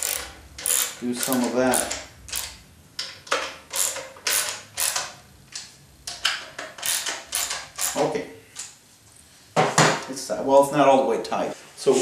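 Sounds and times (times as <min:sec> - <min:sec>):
ratchet wrench clicking: 0:00.0 - 0:05.2, 0:06.2 - 0:08.1.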